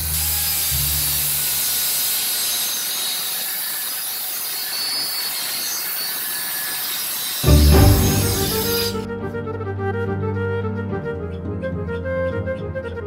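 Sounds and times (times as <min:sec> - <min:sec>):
circular saw cutting wood: 0:00.0 - 0:09.1.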